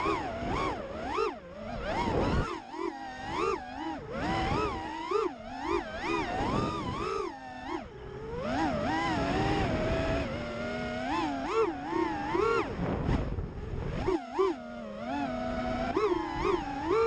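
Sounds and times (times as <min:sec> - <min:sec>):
quadcopter motors whining: 0:00.0 - 0:17.0
wind rushing over microphone: 0:01.7 - 0:02.6, 0:06.1 - 0:10.7, 0:12.2 - 0:14.1.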